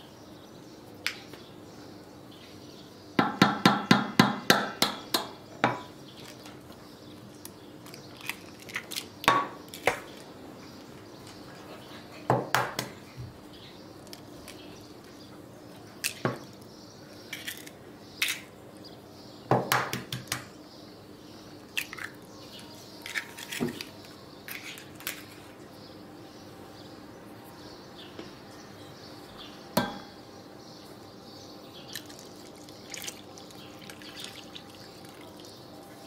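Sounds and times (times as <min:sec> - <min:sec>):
eggs cracking on a metal bowl: 0:07.4 - 0:10.2, 0:21.8 - 0:22.3, 0:31.9 - 0:35.6.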